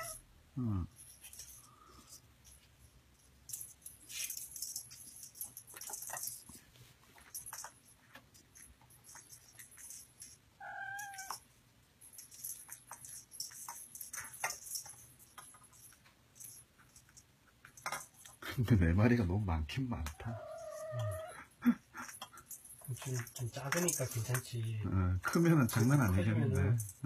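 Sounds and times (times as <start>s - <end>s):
kitten meowing: 0.0s - 0.2s, 10.6s - 11.4s, 20.2s - 21.3s
kittens playing clicks and rustles: 0.0s - 27.0s.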